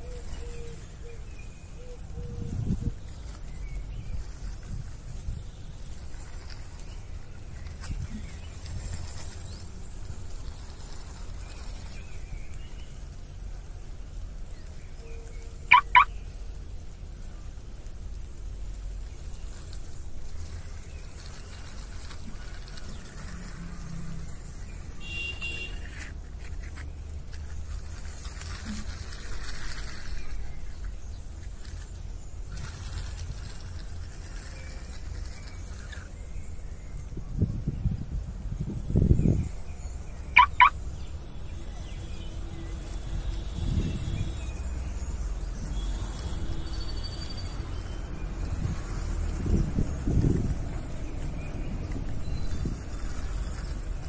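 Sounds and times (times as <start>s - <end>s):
toy car wheels rolling on concrete: 2.5s - 15.6s, 16.6s - 37.0s, 41.0s - 54.0s
high-pitched chirp: 15.7s - 16.1s, 40.4s - 40.8s.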